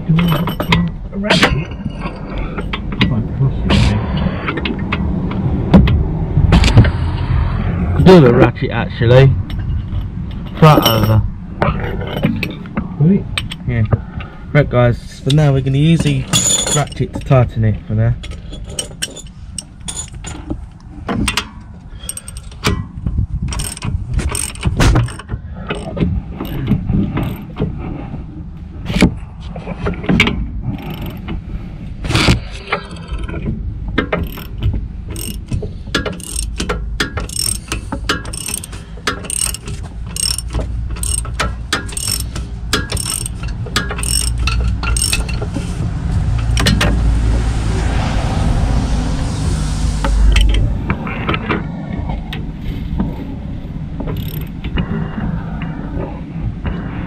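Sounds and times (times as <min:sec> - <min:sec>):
socket and tools clinking: 0:00.1 - 0:03.0, 0:09.5 - 0:11.2, 0:18.2 - 0:20.5, 0:23.5 - 0:27.4, 0:34.1 - 0:45.5, 0:54.1 - 0:54.5
steady rushing noise: 0:02.0 - 0:18.0, 0:25.8 - 0:57.0
ratchet wrench clicking: 0:22.0 - 0:22.7, 0:23.5 - 0:27.4, 0:30.8 - 0:31.2, 0:34.2 - 0:45.5, 0:54.2 - 0:54.5.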